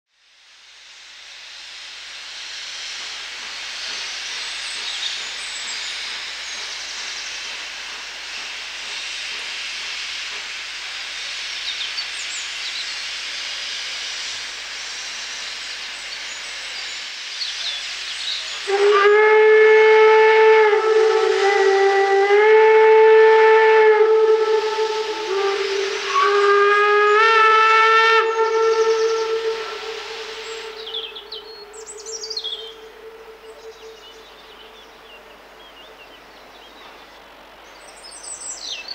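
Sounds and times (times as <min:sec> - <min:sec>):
locomotive steam hissing: 0:00.2 - 0:38.9
steam whistle blast: 0:01.4 - 0:35.6.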